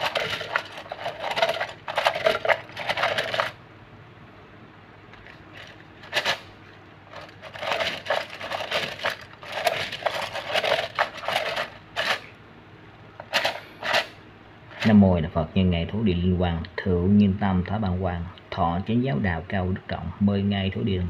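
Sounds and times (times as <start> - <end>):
small hard objects clinking: 0.0 - 3.6, 7.1 - 12.3.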